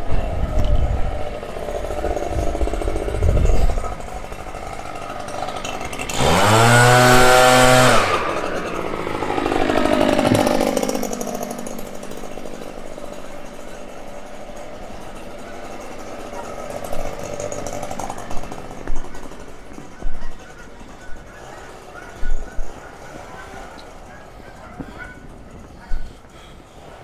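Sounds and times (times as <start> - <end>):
leaf blower engine revving: 0.0 - 27.0.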